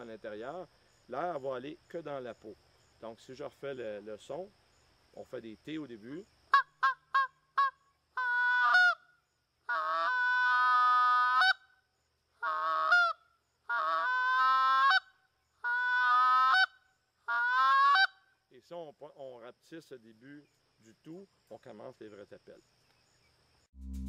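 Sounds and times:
goose call honking notes: 6.5s - 9.0s, 9.7s - 11.6s, 12.4s - 18.2s.

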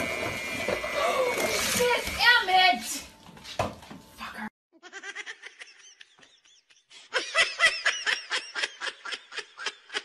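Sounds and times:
person laughing: 4.8s - 10.0s.

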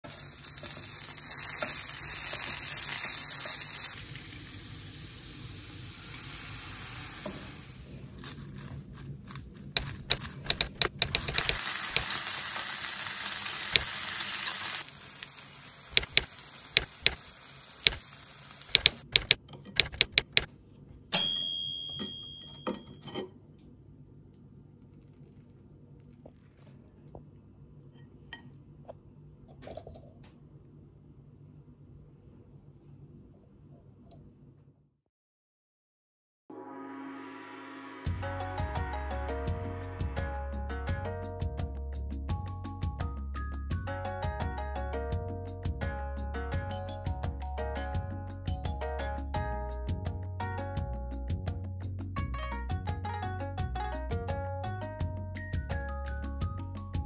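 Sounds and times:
food sizzling on a hot plate: 0.1s - 7.9s, 11.2s - 19.0s
utensil clicks and taps: 9.8s - 12.2s, 16.0s - 17.2s, 18.7s - 20.5s
sharp ringing clink: 21.2s - 23.2s.

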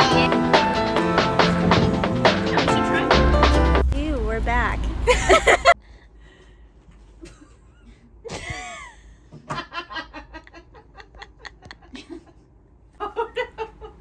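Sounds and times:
person giggling: 5.1s - 5.8s, 7.2s - 14.0s.

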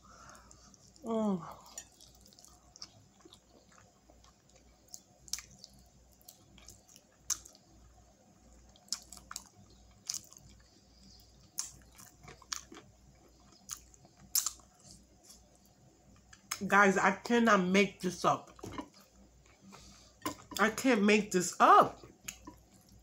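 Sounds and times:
chewing with mouth smacks: 1.6s - 7.7s, 8.6s - 15.6s.

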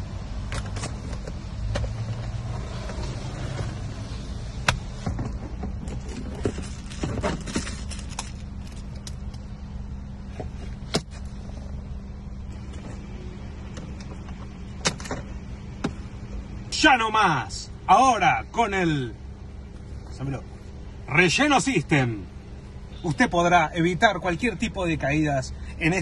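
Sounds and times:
steady low hum: 0.0s - 26.0s
rustling: 5.0s - 9.4s.

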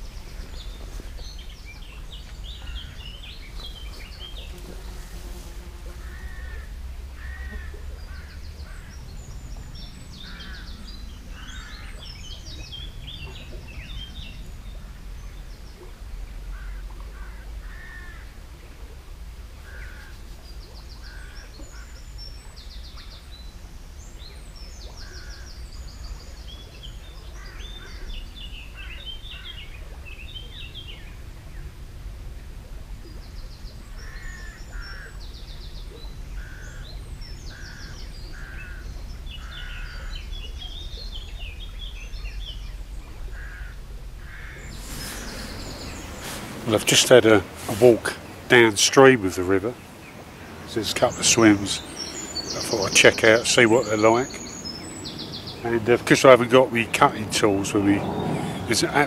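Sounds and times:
birds singing and calling: 0.0s - 18.9s, 19.6s - 31.8s, 33.0s - 59.0s
low steady rumble: 28.2s - 50.9s.

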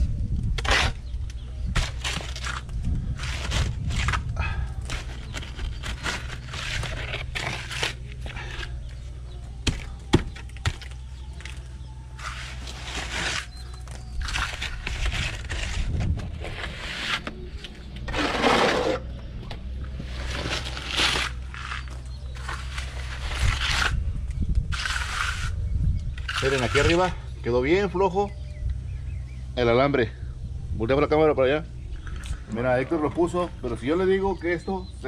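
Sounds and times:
steady low hum: 0.0s - 35.0s
trowel scraping plaster: 0.6s - 1.1s, 1.7s - 8.8s, 12.2s - 19.1s, 20.1s - 24.0s, 24.7s - 25.6s, 26.2s - 27.1s.

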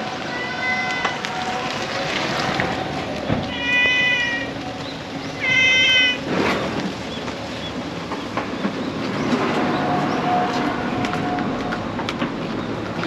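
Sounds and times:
cat meowing: 3.5s - 4.5s, 5.4s - 6.2s.

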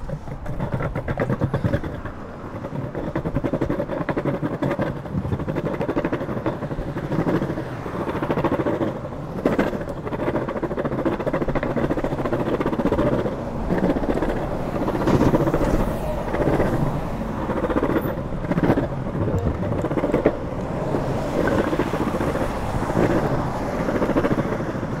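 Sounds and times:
longboard wheels rolling on concrete: 0.0s - 25.0s.

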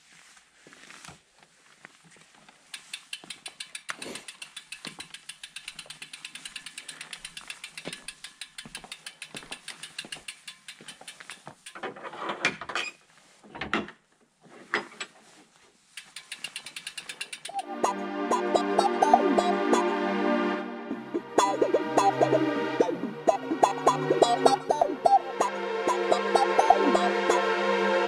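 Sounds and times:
bicycle freehub ticking: 2.6s - 11.8s, 15.9s - 19.6s.

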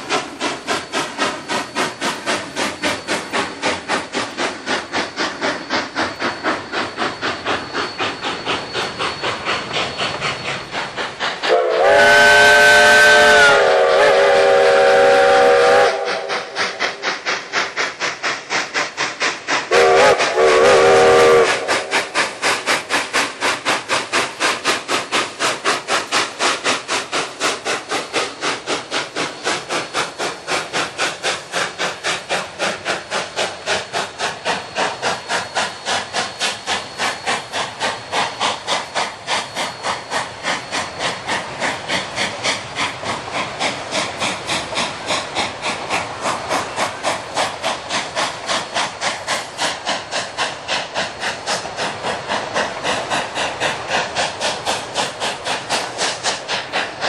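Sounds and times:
steam locomotive exhaust chuffing: 0.0s - 57.0s
steam locomotive whistle: 11.3s - 17.0s, 19.7s - 22.2s.

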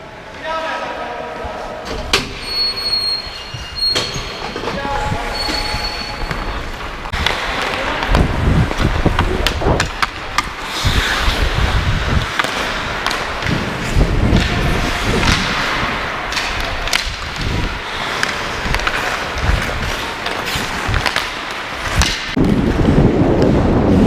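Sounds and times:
hockey sticks clacking: 4.1s - 23.6s
skates scraping on ice: 4.7s - 24.0s
low wind rumble on microphone: 7.0s - 17.8s, 22.0s - 24.0s.

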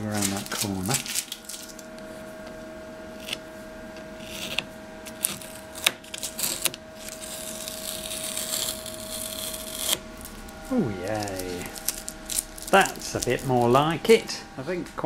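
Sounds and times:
steady faint hum: 0.0s - 15.0s
masking tape peeling: 4.2s - 13.8s.

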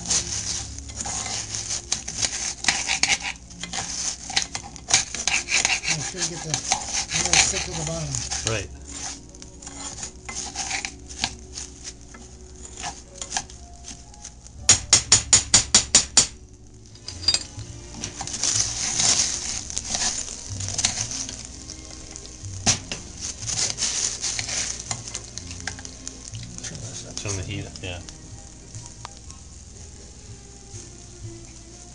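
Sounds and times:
metal spoon scraping pot: 0.0s - 13.6s, 16.9s - 22.2s, 22.9s - 26.6s
rice sizzling in hot oil: 0.0s - 31.9s.

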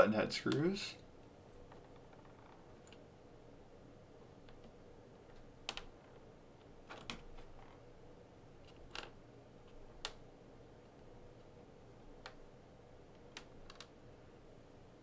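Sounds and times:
small plastic parts clicking: 5.3s - 7.7s, 13.1s - 14.0s.

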